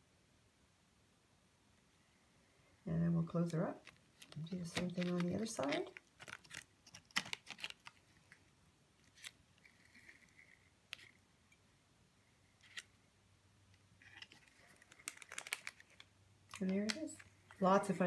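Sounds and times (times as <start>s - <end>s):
paper rustling: 3.8s - 11.2s, 14.1s - 17.9s.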